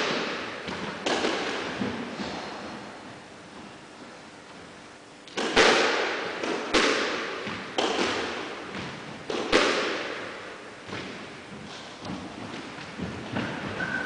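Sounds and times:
squash ball cracking off rackets and walls: 0.0s - 2.6s, 5.3s - 14.0s.

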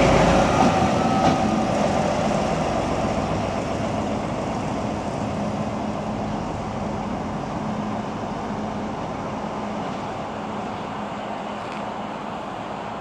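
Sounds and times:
diesel locomotive engine humming: 0.0s - 13.0s.

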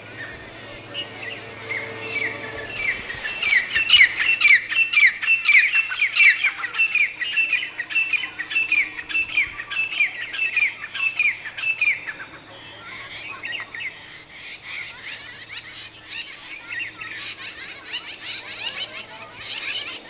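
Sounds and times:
francolin calling: 0.0s - 20.0s.

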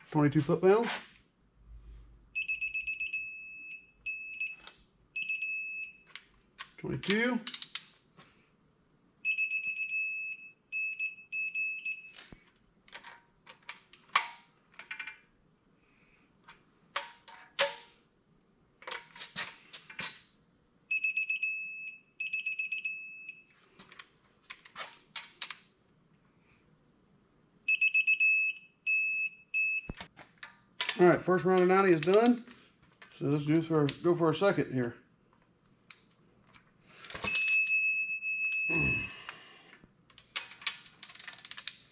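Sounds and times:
torque wrench high beeps: 2.4s - 6.1s, 9.2s - 12.2s, 20.9s - 23.5s, 27.7s - 30.0s, 37.3s - 39.3s.

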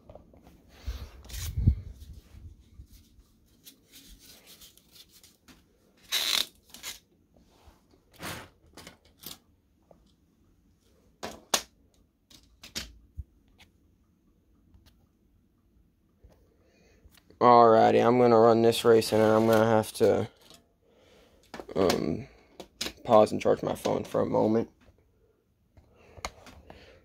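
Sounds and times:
handling scrapes rustles and clicks: 1.2s - 7.1s, 19.0s - 20.6s.

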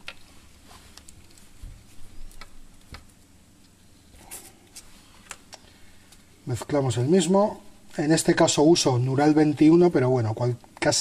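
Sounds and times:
small objects clicking and tapping: 2.2s - 3.8s.

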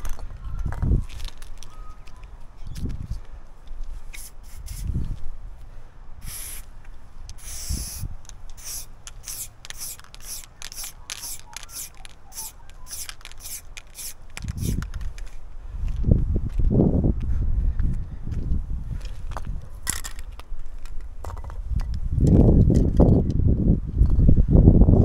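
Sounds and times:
spray paint can hissing: 4.0s - 5.0s, 6.2s - 6.7s, 7.3s - 15.0s.

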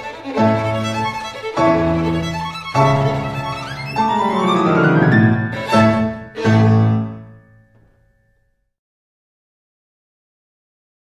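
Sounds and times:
instrumental background music: 0.0s - 8.0s.

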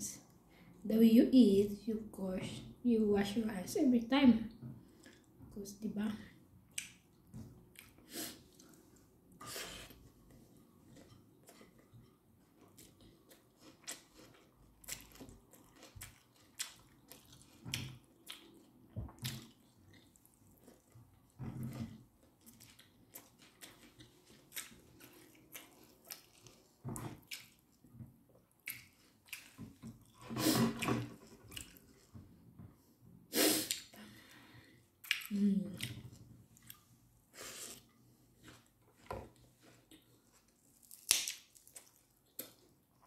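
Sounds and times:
person chewing and lip smacking: 6.7s - 8.8s, 10.9s - 21.0s, 22.4s - 27.7s, 28.5s - 30.2s, 35.0s - 36.0s.

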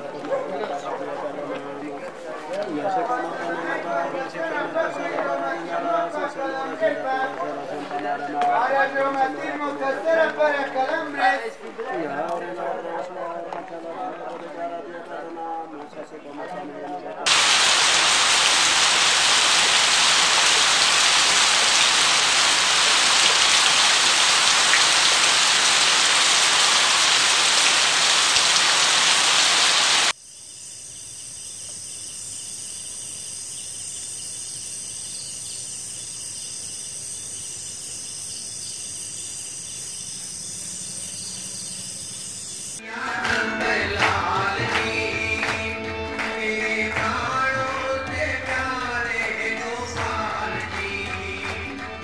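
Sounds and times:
heavy rain: 17.3s - 30.2s
insects high-pitched tones: 29.2s - 43.0s.

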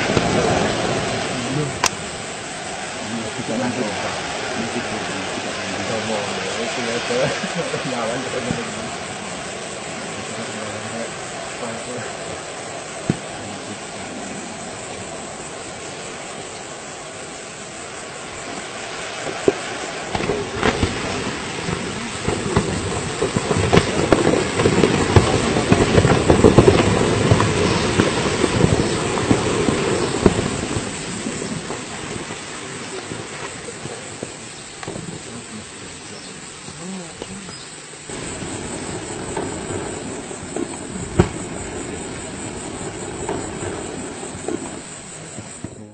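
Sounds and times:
dense crackling and popping: 0.0s - 45.9s
volcanic eruption low rumble: 0.0s - 45.9s.

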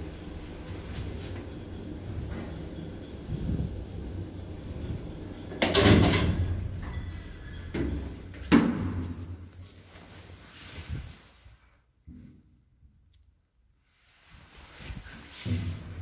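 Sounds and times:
lift running with low hum: 0.0s - 10.6s.

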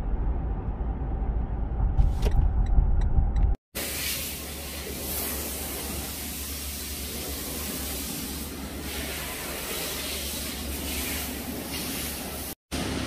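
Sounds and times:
constant low hum: 0.0s - 3.6s.

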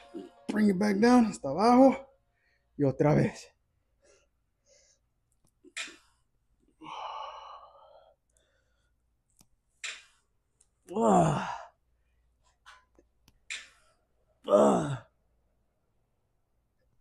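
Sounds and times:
man breathing out hard: 6.8s - 8.8s
man groaning: 10.9s - 11.7s, 14.4s - 15.1s.

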